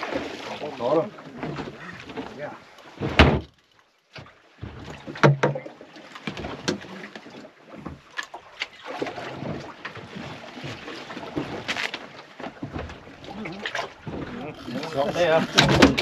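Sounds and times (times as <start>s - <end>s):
wash of water: 0.0s - 2.6s
boat knocks and clunks: 0.0s - 16.0s
wind: 0.0s - 16.0s.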